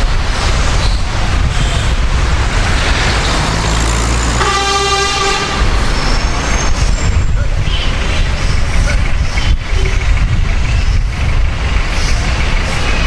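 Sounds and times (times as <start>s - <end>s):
vehicle rumble: 0.0s - 13.0s
vehicle horn: 4.3s - 5.8s.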